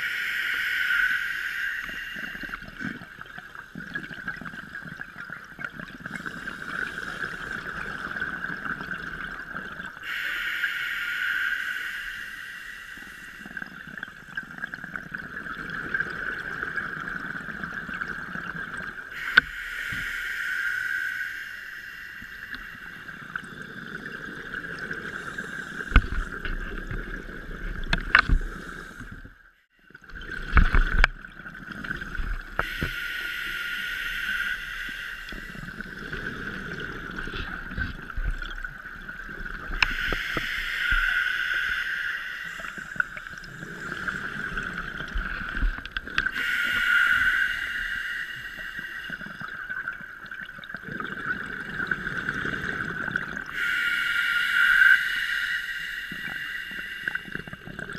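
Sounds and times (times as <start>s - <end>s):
steady high whine: 0.0s - 3.3s, 9.9s - 14.7s, 19.1s - 26.8s, 32.3s - 37.8s, 38.7s - 50.3s, 53.4s - 57.9s
regulator breathing underwater: 0.0s - 5.0s, 6.0s - 29.4s, 31.7s - 57.9s
bubbles gurgling: 29.9s - 53.9s, 54.6s - 57.9s.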